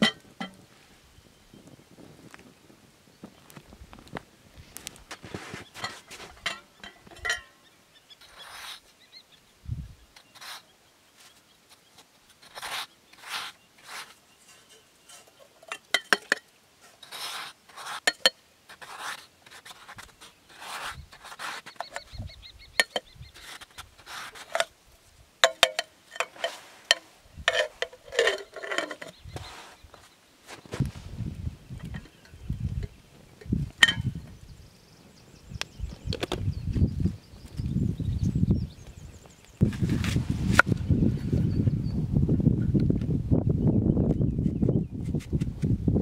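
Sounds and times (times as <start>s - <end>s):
metal kettle scraping through snow: 4.6s - 7.5s, 8.2s - 8.8s, 12.4s - 22.2s, 22.8s - 24.7s, 25.6s - 32.3s, 39.6s - 40.8s.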